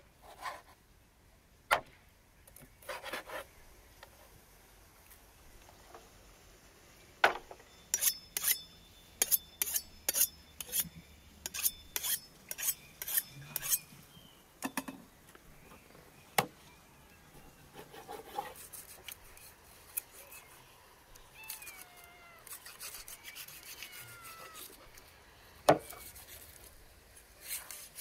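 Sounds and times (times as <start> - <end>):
knife scraping on sharpening rod: 7.9 - 13.9, 22.4 - 24.8.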